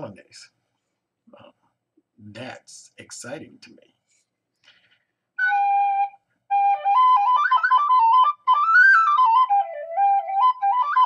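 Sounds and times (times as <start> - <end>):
tin whistle melody: 5.4 - 11.0.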